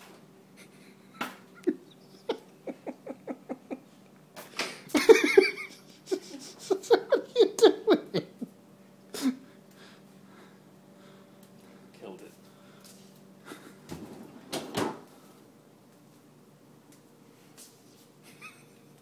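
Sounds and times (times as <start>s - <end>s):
person laughing: 0.6s - 4.0s, 4.9s - 8.5s, 18.2s - 19.0s.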